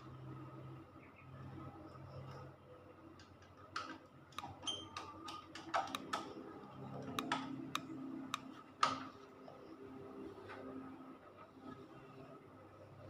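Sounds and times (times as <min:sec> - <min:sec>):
small clicks and metallic taps: 0:03.2 - 0:09.1.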